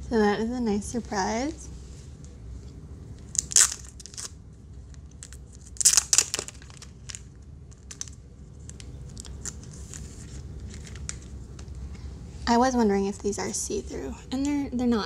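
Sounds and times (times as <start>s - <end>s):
plastic wrapper crinkling: 3.2s - 11.8s.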